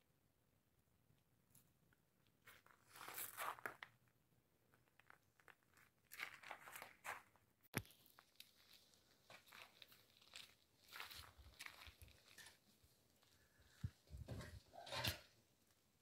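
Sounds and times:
footsteps on gritty ground: 2.4s - 4.0s, 5.0s - 14.4s.

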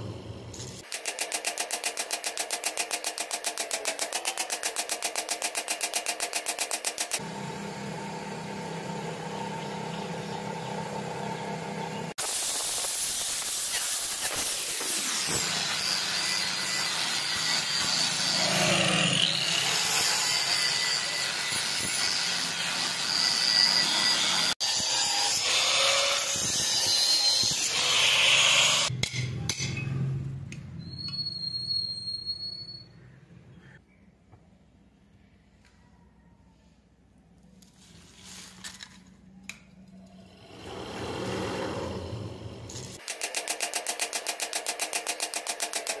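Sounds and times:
electric grinder motor running: 15.2s - 26.4s.

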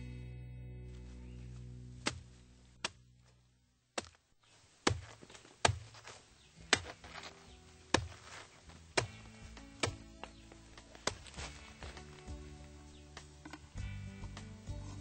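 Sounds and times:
background music: 0.0s - 3.0s, 6.6s - 15.0s
blade chopping into plant trunk: 2.0s - 2.2s, 4.8s - 7.3s, 7.9s - 10.4s.

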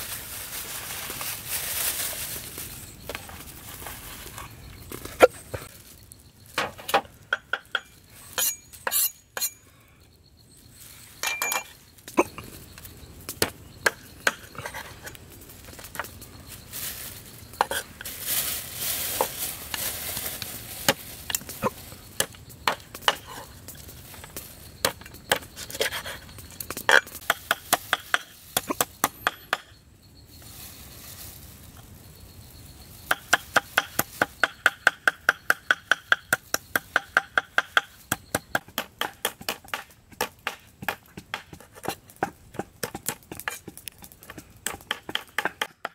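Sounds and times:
utensils and cookware clinking: 6.6s - 9.6s, 11.2s - 11.8s.

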